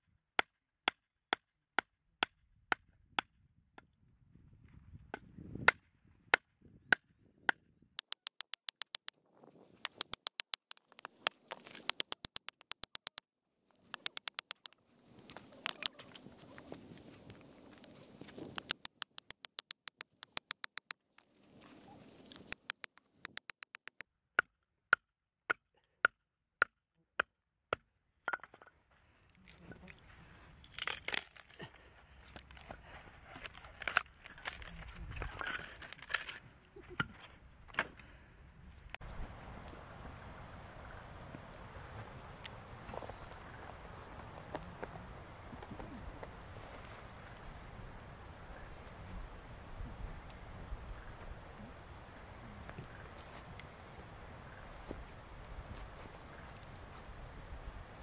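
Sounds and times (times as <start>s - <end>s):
wood splitting: 8.0s - 9.1s, 9.9s - 13.2s, 13.9s - 14.7s, 18.1s - 21.3s, 22.3s - 24.0s, 30.6s - 31.6s
hatchet knocking into log: 9.9s - 13.2s, 14.0s - 14.7s.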